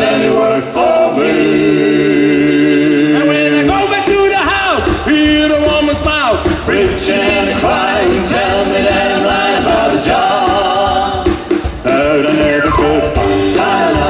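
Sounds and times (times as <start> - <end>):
drums and band backing: 0.0 - 14.0
male vocal group singing harmony: 0.0 - 14.0.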